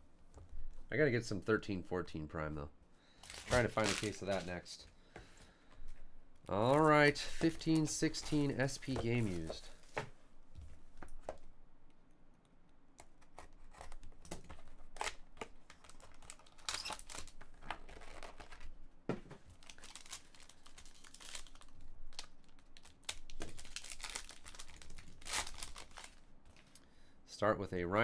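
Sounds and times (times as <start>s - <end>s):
plastic shrink wrap tearing: 3.2s - 4.5s, 14.8s - 18.7s, 19.5s - 26.2s
foil pack crinkling: 3.2s - 4.6s, 13.6s - 18.7s, 19.5s - 26.8s.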